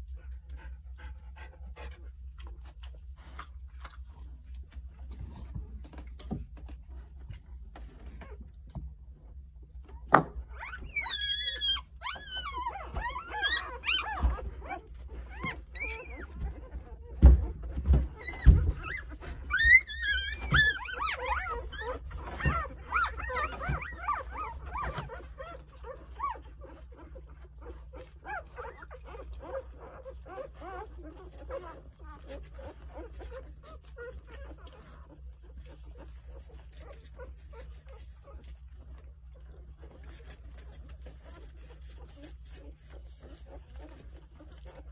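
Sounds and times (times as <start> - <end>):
puppies squeaking and whimpering: 9.6 - 44.9.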